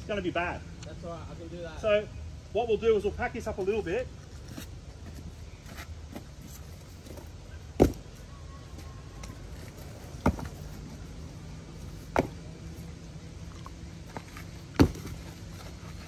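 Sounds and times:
rocks knocking: 0:07.8 - 0:08.1, 0:12.1 - 0:12.4, 0:14.1 - 0:15.3.

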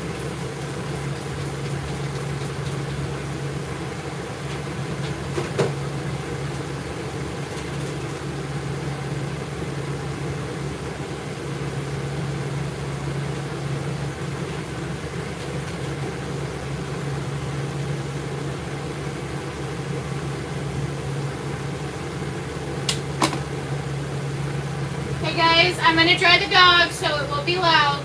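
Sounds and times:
blower motor whirring: 0:00.0 - 0:28.0.

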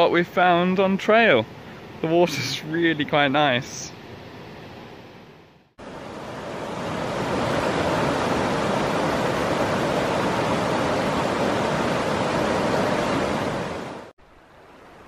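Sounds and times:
creek rushing over rocks: 0:05.8 - 0:15.0.

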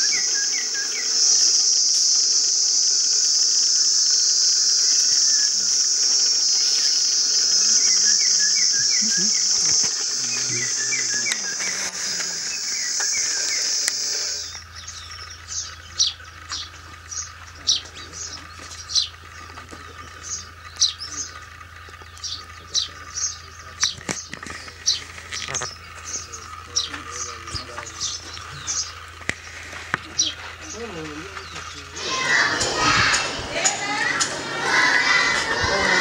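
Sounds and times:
bird chirps: 0:00.0 - 0:02.1, 0:07.4 - 0:36.0
high-pitched insect drone: 0:00.0 - 0:36.0
low hum: 0:31.7 - 0:36.0.

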